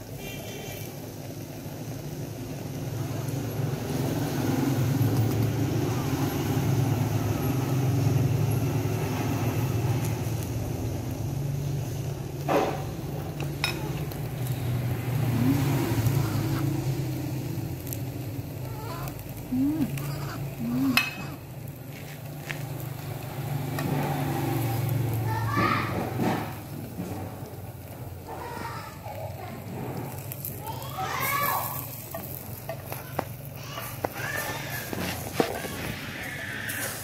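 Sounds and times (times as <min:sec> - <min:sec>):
low engine drone: 0:14.2 - 0:18.7
utensils clinking: 0:19.6 - 0:21.4.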